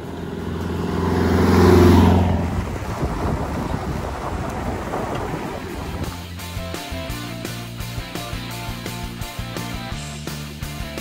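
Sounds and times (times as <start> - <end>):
car engine passing: 0.0 - 7.5
tyres crunching on dirt: 0.0 - 8.7.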